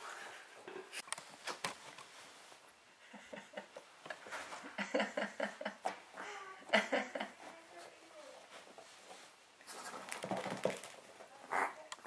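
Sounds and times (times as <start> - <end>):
small dog whimpering: 11.5 - 11.8.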